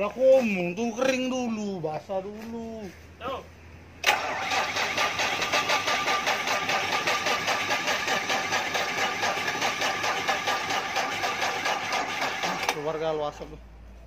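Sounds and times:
diesel engine clattering: 4.0 - 13.5.

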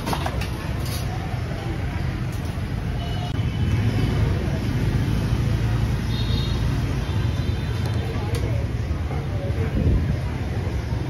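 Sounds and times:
traffic rumble: 0.0 - 11.0
faint background voices: 7.5 - 11.0.

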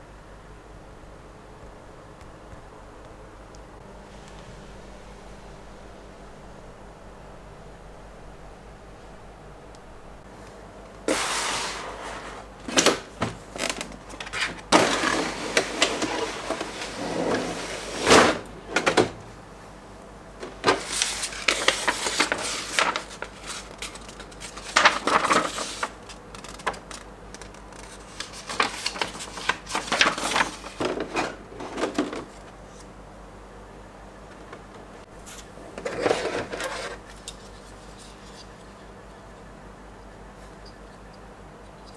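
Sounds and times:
packaging rustling and clicking: 20.4 - 31.2.

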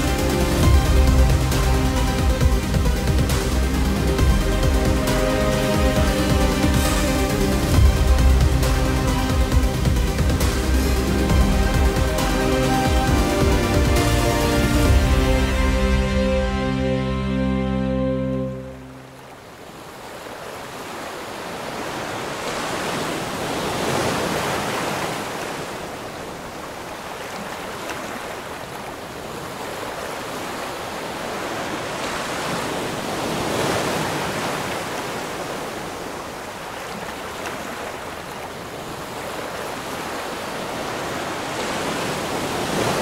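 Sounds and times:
waves churning and breaking: 0.0 - 43.0.

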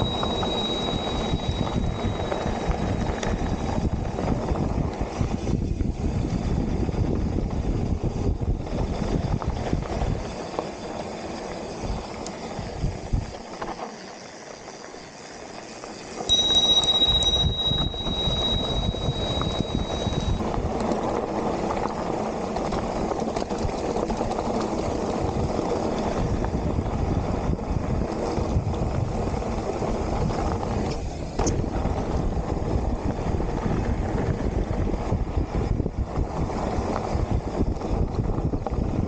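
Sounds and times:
thin high squeal: 0.0 - 3.3, 16.3 - 20.4
wind on microphone: 0.0 - 11.0, 11.7 - 13.7, 16.3 - 39.0
bike tyre and chassis rattle: 0.0 - 39.0.

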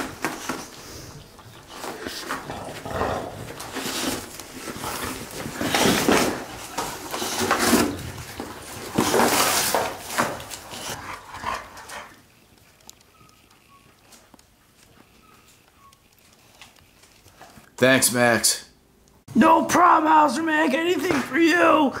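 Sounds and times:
dog ripping cardboard: 1.8 - 12.1.

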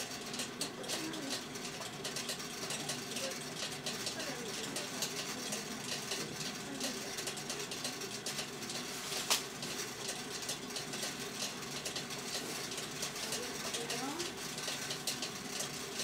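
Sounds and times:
rice-popping machine drum clattering: 0.0 - 16.0.

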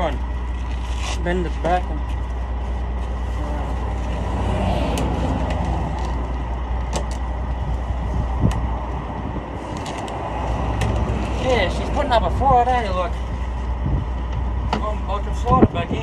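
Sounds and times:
diesel engine idling: 0.0 - 16.0.

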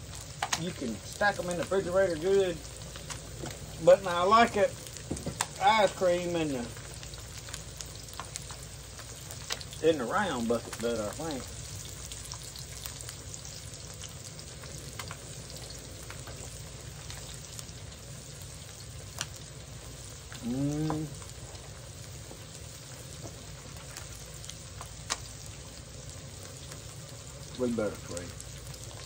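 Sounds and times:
fish frying in oil: 0.0 - 29.0
person humming: 20.4 - 21.1.

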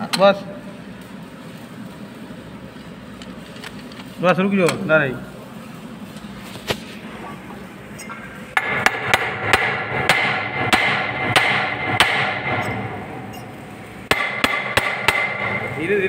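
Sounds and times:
hammer striking metal: 8.6 - 15.8.

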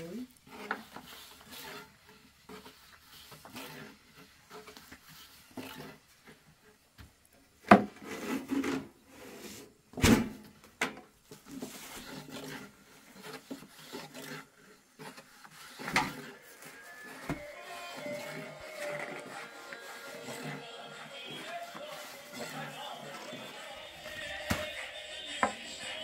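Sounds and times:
rolling pin rubbing on wood: 0.4 - 6.4, 11.3 - 26.0.

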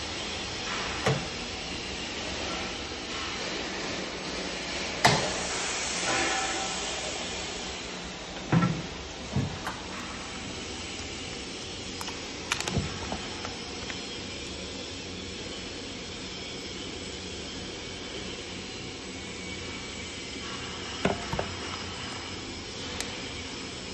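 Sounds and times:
steady hum: 0.0 - 23.9
plastic pouch clicking: 11.9 - 14.0.

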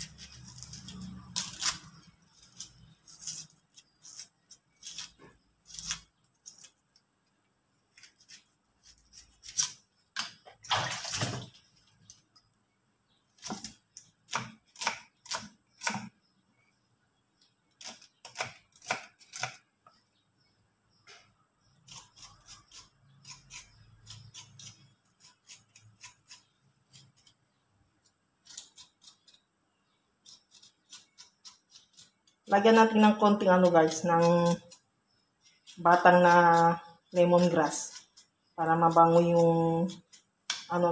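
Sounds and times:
onion skins scraping: 0.0 - 7.0, 7.8 - 12.2, 21.7 - 29.5, 30.2 - 40.9.

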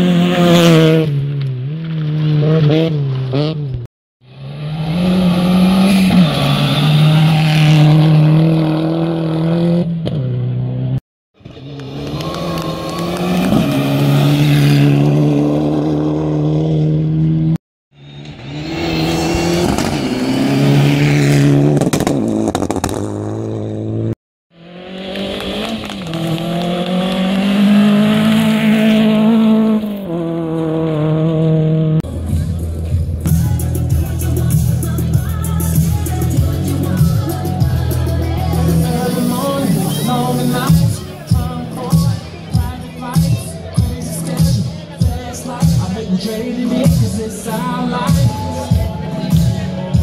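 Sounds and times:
rally cars passing at speed: 0.0 - 32.9.

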